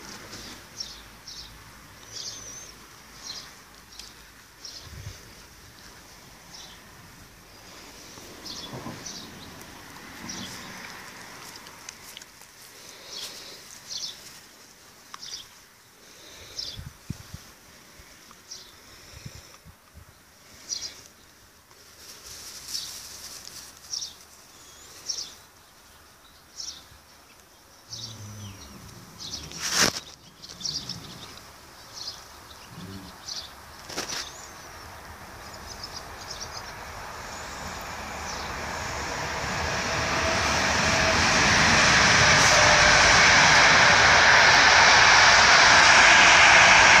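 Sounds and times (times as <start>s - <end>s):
rushing engine drone: 35.2s - 47.0s.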